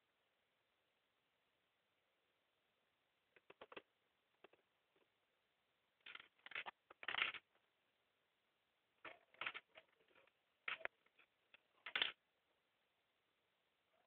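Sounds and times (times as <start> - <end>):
plastic toys clattering on wood: 3.4 - 4.6, 6.0 - 7.6, 9.0 - 12.2.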